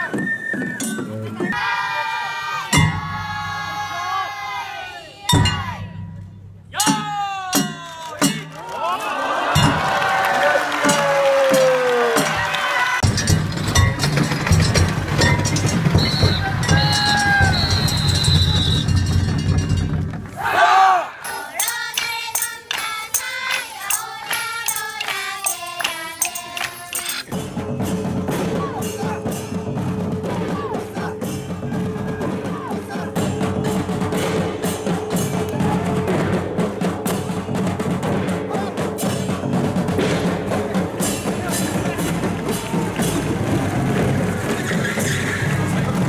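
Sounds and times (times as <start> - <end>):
children singing: 1.4 - 5.7, 21.2 - 27.3
sharp percussive beat: 5.3 - 8.6, 9.5 - 20.4, 21.2 - 46.0.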